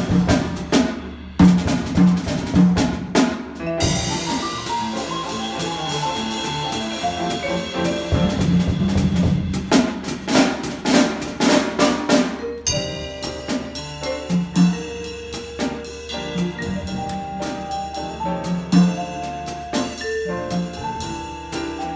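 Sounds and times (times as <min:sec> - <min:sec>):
drum kit: 0:00.0 - 0:21.9
grand piano: 0:00.0 - 0:21.9
vibraphone: 0:03.6 - 0:08.2, 0:11.8 - 0:21.9.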